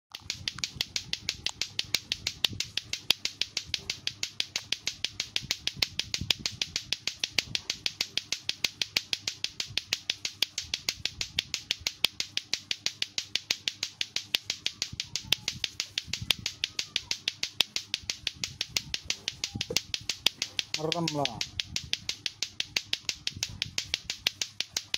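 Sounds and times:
plastic balls clacking: 0.1s - 24.9s.

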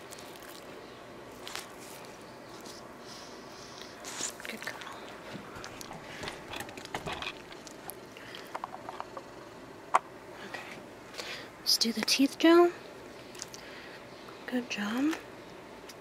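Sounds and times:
soft rustles: 1.3s - 2.9s.

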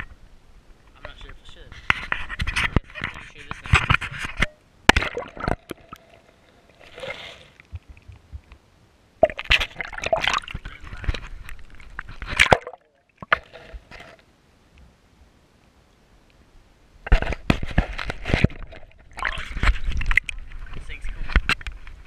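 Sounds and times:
water sloshing and gurgling: 0.0s - 8.6s, 9.2s - 14.3s, 17.0s - 22.0s
knocks and scrapes on camera: 1.1s - 4.6s, 7.7s - 8.5s, 10.5s - 12.5s, 17.0s - 22.0s.

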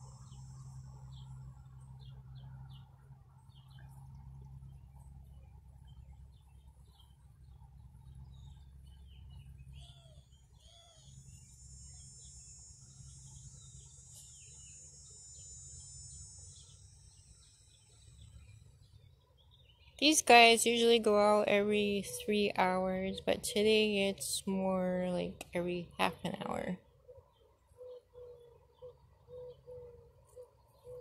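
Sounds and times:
high insect drone: 0.0s - 2.4s, 10.4s - 18.8s
bird chirps: 0.0s - 5.0s, 5.8s - 20.8s, 26.0s - 31.0s
low steady rumble: 0.0s - 27.0s.

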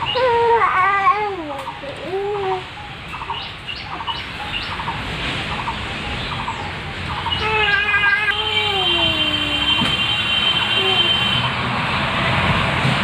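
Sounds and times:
parakeets calling: 2.8s - 8.8s.

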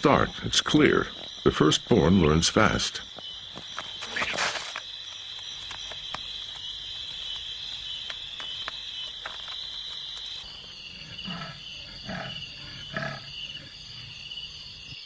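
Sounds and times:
insects chirring: 0.0s - 15.0s
leopard cub growling: 10.9s - 13.7s.

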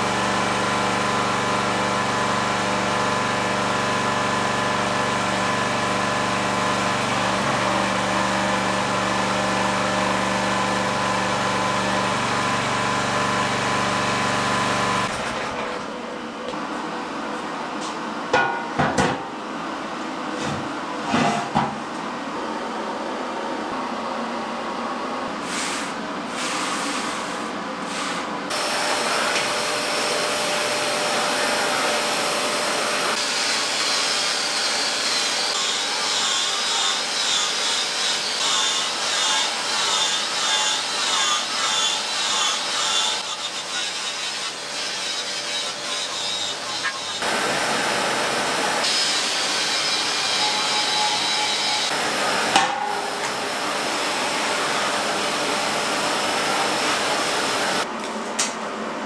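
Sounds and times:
angle grinder on steel: 28.5s - 47.4s, 48.8s - 53.4s.

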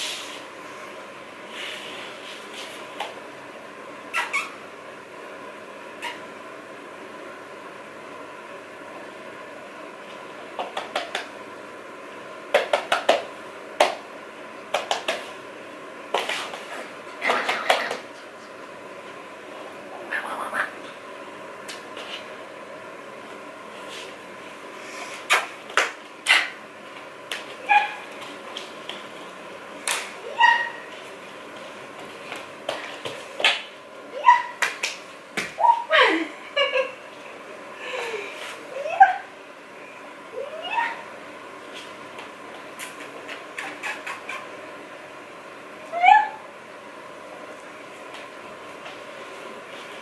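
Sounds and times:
puppy whining and yipping: 27.6s - 28.0s, 30.3s - 30.9s, 40.4s - 41.0s.

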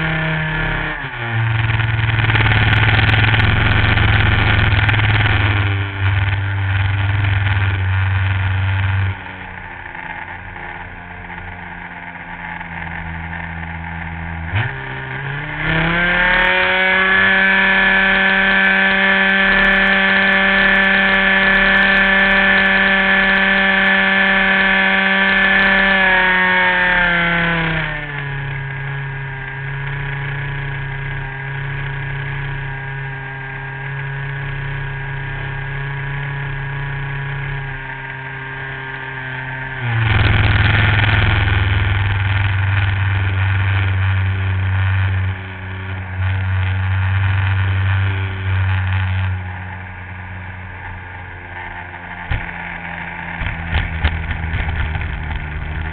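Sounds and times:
model plane engine buzzing: 15.8s - 27.7s, 39.9s - 55.9s.

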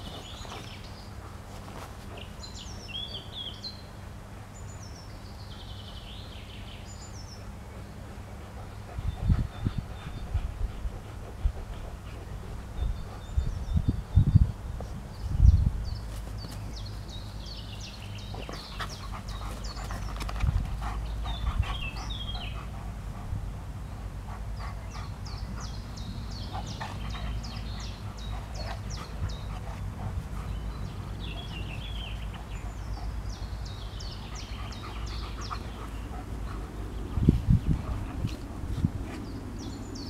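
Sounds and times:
dogs panting: 7.2s - 13.7s, 16.4s - 40.0s.

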